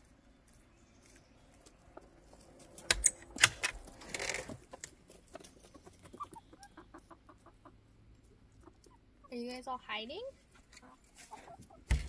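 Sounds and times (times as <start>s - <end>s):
rustling in dry leaves: 0.0s - 2.9s
chickens tapping: 0.5s - 9.4s
chickens clucking softly: 4.6s - 9.4s, 10.5s - 11.9s.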